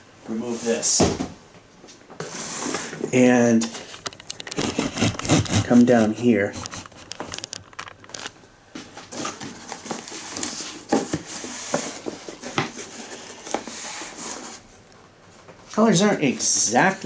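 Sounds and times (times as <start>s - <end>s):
cardboard rustling and scraping: 2.2s - 14.8s.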